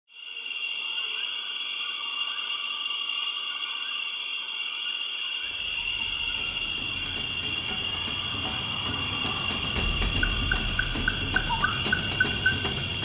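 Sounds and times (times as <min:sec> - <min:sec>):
chorus of calling animals: 0:00.2 - 0:13.0
low rumble: 0:05.5 - 0:13.0.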